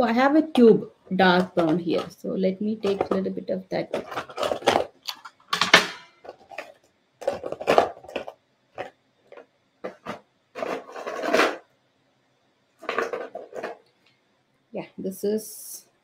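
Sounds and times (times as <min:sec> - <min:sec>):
paint rubbing and scraping: 0:06.3 - 0:11.6.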